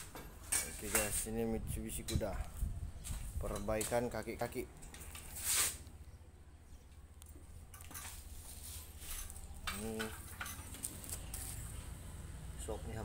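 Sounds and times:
metal tools clinking: 7.7 - 11.5.

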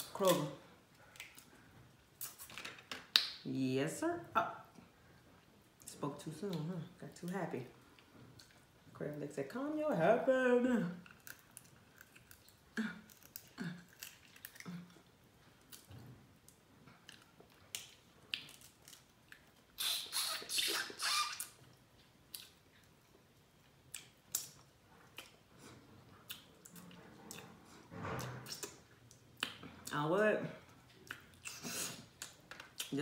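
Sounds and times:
crab legs cracking: 11.1 - 15.0
wet sucking and chewing: 11.1 - 23.0, 30.9 - 32.9.

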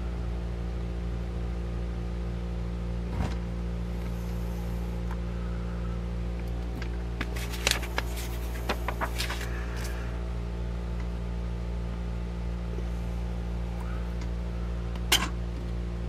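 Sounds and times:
steady low hum: 0.0 - 16.0
book pages rustling: 7.1 - 10.0.

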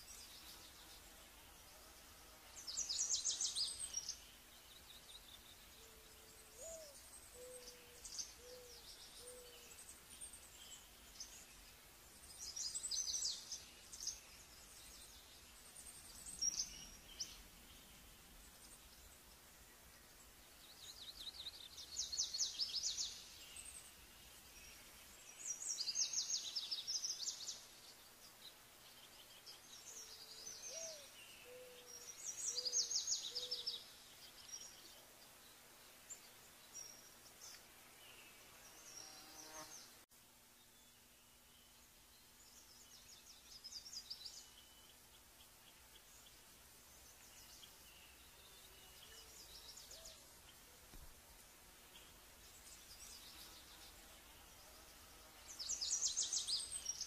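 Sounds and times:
bird trilling song: 2.5 - 11.6, 28.9 - 35.1, 51.9 - 57.0
bird hooting: 5.8 - 9.6.

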